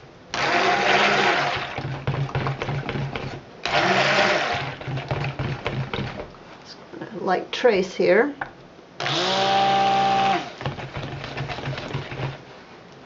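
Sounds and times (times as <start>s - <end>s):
stick blender whirring: 0.3s - 6.2s, 9.0s - 12.4s.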